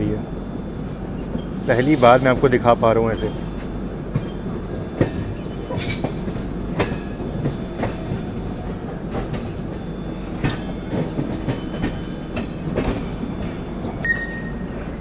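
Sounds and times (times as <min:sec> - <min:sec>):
train wheels rumbling and clacking: 0:00.0 - 0:15.0
wheel squeal: 0:01.4 - 0:04.5, 0:05.4 - 0:06.6, 0:14.0 - 0:15.0.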